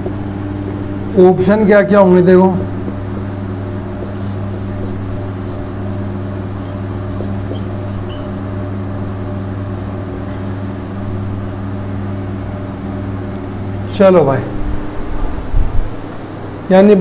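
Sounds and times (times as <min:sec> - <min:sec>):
electrical hum: 0:00.0 - 0:17.0
marker strokes on whiteboard: 0:04.0 - 0:08.4, 0:09.2 - 0:10.8.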